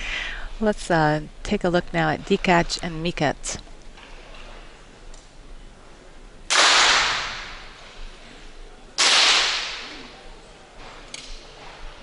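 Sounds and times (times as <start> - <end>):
pistol shots with ringing echo: 6.5 - 7.6, 9.0 - 9.9.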